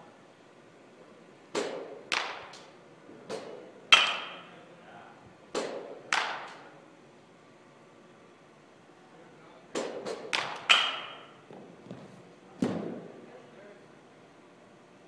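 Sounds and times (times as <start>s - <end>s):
baseballs being hit and caught: 1.5s - 4.5s, 5.5s - 6.8s, 9.7s - 13.2s.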